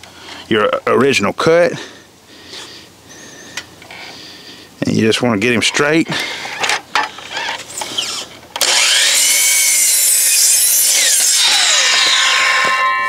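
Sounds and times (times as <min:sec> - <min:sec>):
miter saw cutting wood: 0:07.3 - 0:13.0.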